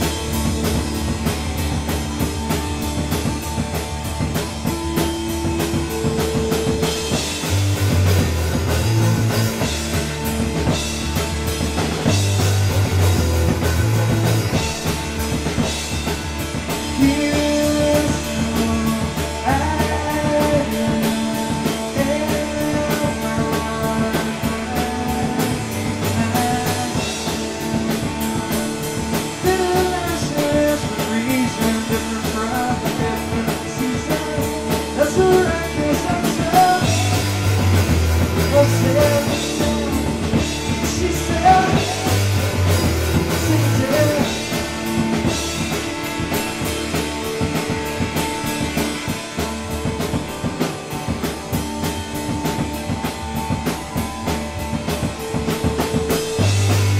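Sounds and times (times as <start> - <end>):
rock band music: 0.0 - 56.9
person singing: 16.9 - 27.7, 29.3 - 44.8.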